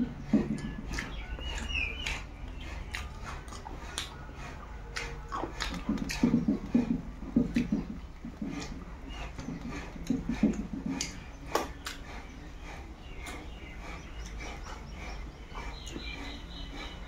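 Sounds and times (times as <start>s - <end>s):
wet chewing and lip smacking: 0.1s - 17.0s.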